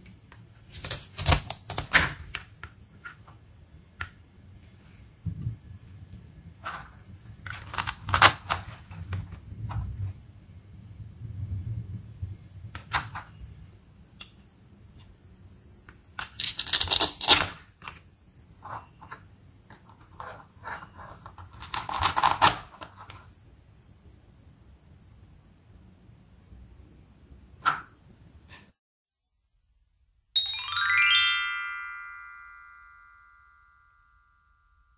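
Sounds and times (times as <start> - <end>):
velcro rasping: 16.4 - 17.6.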